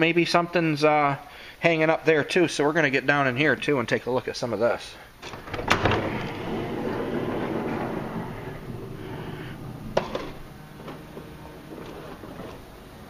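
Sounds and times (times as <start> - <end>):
sliding door motor running: 5.2 - 13.0.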